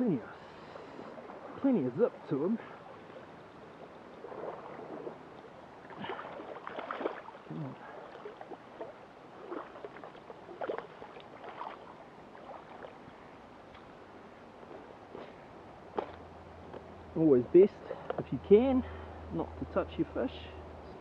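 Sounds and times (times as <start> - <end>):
boots wading through water: 0.7 - 13.9
fish splashing in shallow water: 2.6 - 13.0.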